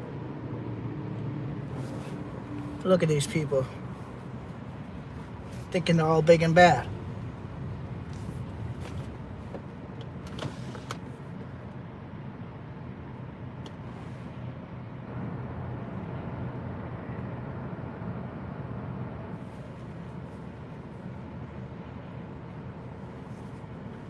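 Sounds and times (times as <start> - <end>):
car cabin hum: 1.5 - 14.3, 15.1 - 24.0
car engine idling: 1.6 - 11.9.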